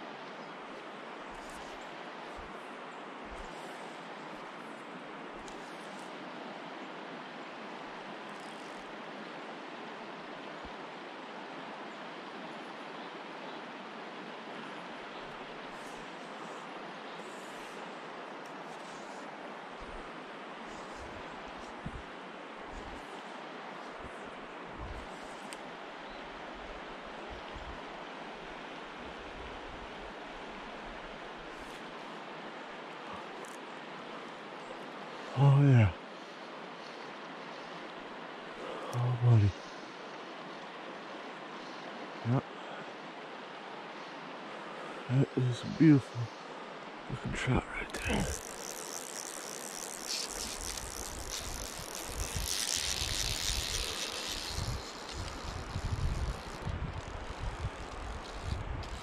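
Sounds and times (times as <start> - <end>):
creek water rushing over rocks: 0.0 - 59.0
wind rumble on microphone: 20.9 - 23.2, 50.6 - 59.0.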